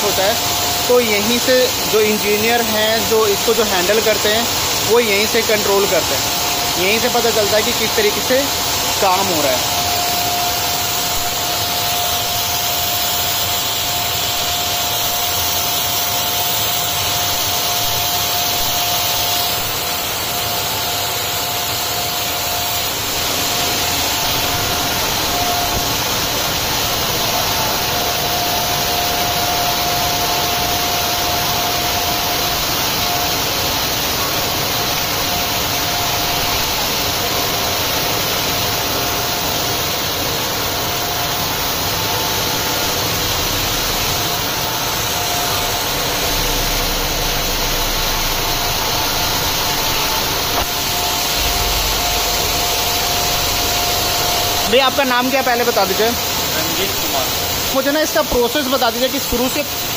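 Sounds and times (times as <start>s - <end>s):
knitting machines whirring: 0.0s - 59.9s
thin steady whine: 0.0s - 59.9s.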